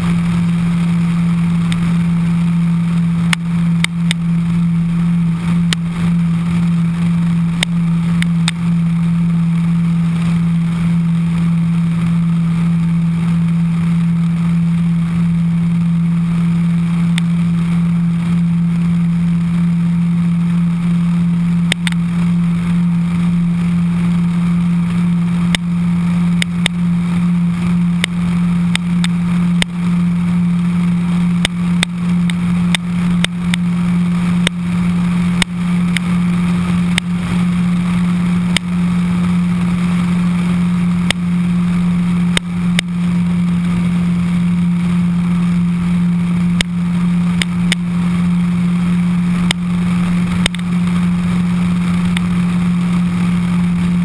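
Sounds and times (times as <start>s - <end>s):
motorcycle engine droning: 0.0s - 54.0s
rushing air: 0.0s - 54.0s
short sharp ticks: 21.7s - 22.0s.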